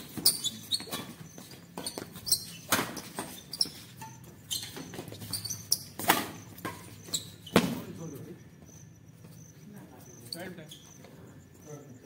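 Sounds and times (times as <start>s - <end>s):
shoes squeaking on concrete: 0.0s - 11.7s
rackets hitting shuttlecock: 5.8s - 6.9s.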